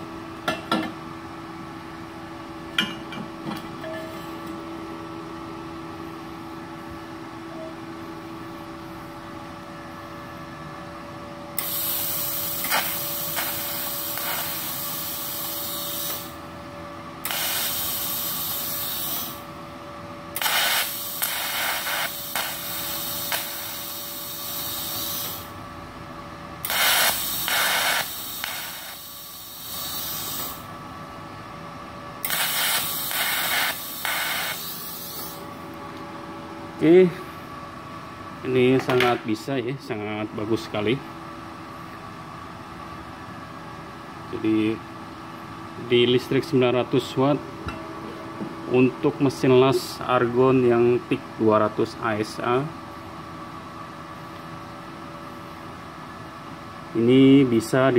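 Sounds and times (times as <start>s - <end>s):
faint welder hum: 0.0s - 57.9s
hissing crackling welding arc: 11.6s - 16.4s, 17.2s - 19.5s, 20.4s - 25.6s, 26.6s - 30.7s, 32.2s - 35.4s.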